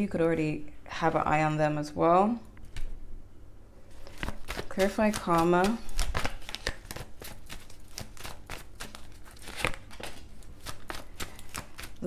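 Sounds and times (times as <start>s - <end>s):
cards being shuffled: 3.9s - 12.0s.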